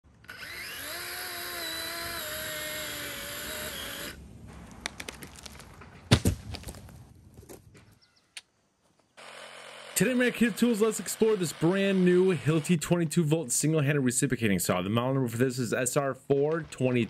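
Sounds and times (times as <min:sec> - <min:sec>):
cordless power saw cutting: 0:00.1 - 0:04.2, 0:09.2 - 0:13.0
branch cracking: 0:04.6 - 0:07.6
branch hitting the ground: 0:04.6 - 0:07.7.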